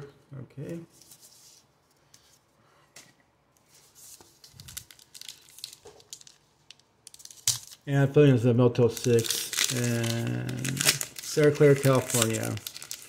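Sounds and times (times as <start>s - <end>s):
trading cards being handled: 8.9s - 13.0s.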